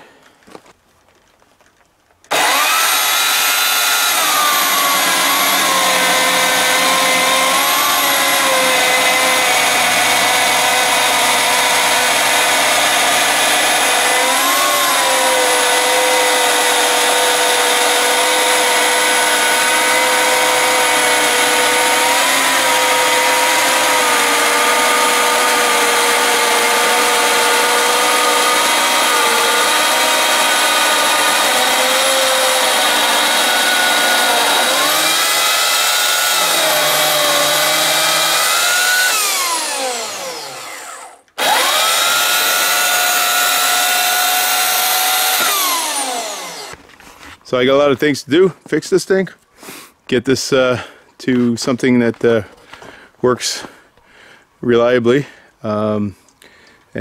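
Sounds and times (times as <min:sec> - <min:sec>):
electric chainsaw cutting log: 0:02.3 - 0:47.0.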